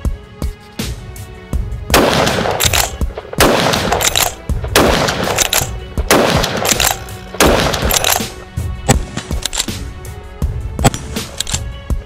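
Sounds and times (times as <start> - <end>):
background music: 0.0 - 12.0
rifle shots echoing: 1.9 - 9.4.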